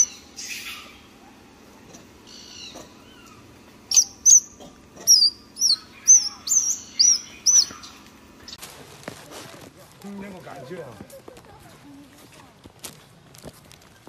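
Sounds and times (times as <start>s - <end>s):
baby monkey squealing: 0.0s - 1.1s, 2.3s - 8.0s.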